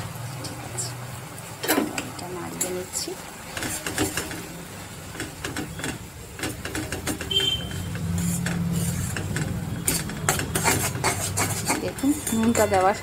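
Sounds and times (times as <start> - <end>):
spatula scraping a pan: 3.5 - 4.5, 5.1 - 13.0.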